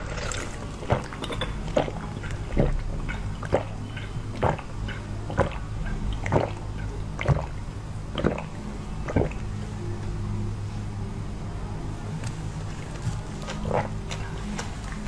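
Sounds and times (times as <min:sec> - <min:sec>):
person gulping a drink: 0:00.0 - 0:06.6, 0:08.2 - 0:09.4, 0:13.5 - 0:14.0
low steady hum: 0:00.0 - 0:15.0.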